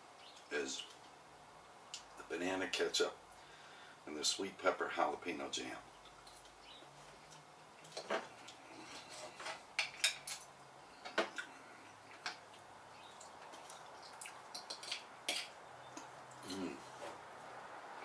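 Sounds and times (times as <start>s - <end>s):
cutlery scraping a plate: 14.7s - 15.5s.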